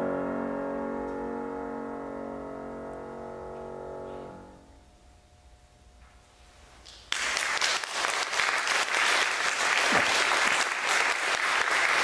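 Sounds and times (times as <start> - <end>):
audience applause: 6.9 - 12.0.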